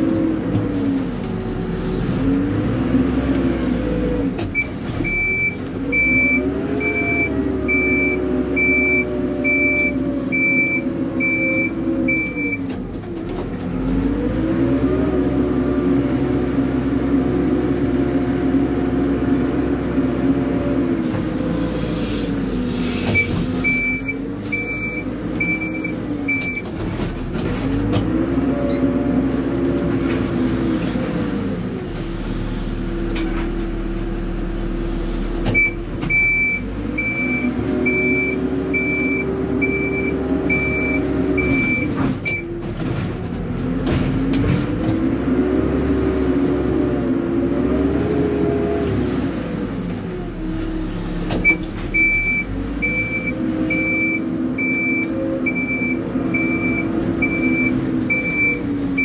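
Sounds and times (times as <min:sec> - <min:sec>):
diesel engine revving: 0:00.0 - 0:59.0
reversing alarm beeping: 0:04.6 - 0:12.6, 0:35.6 - 0:42.4, 0:51.4 - 0:59.0.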